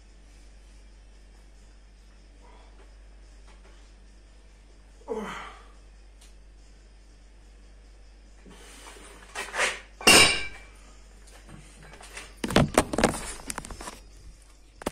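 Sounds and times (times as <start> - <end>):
loud ringing metal clank: 10.0 - 10.8.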